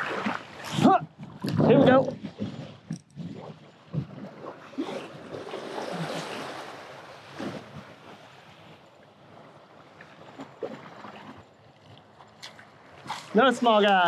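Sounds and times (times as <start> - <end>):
wind on microphone: 0.0 - 8.7.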